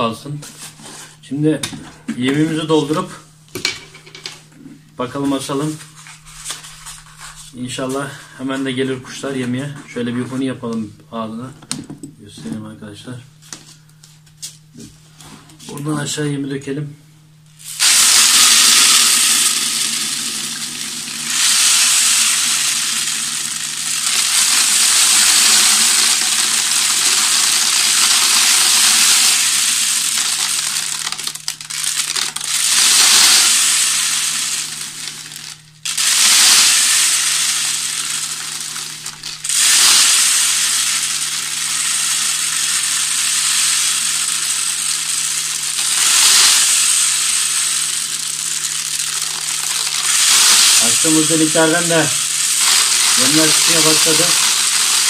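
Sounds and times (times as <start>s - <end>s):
bird seed pouring through funnel: 17.6s - 55.0s.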